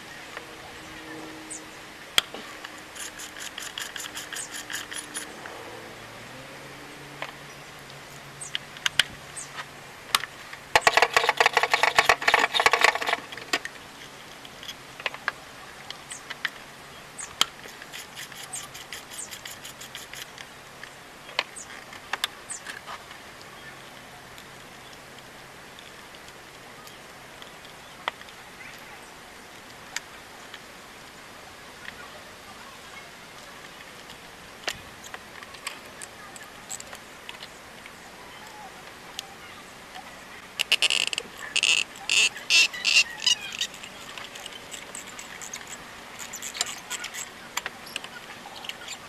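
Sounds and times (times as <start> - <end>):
ratchet wrench clicking: 2.9 - 5.3.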